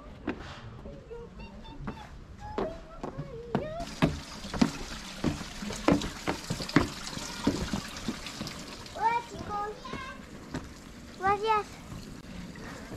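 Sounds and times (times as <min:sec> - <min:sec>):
footsteps on stone steps: 0:01.8 - 0:08.6, 0:09.3 - 0:10.7
fountain water splashing: 0:03.8 - 0:09.4.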